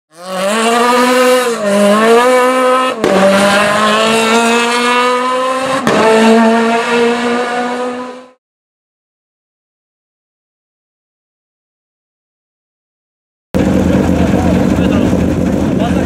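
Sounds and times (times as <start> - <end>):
racing car engine at high revs: 0.1 - 8.4, 13.6 - 16.0.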